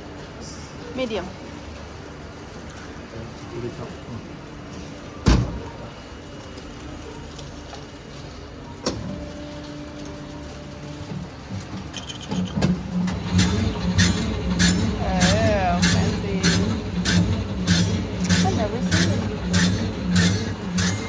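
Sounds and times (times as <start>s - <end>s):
bread slicer motor humming: 12.8s - 21.0s.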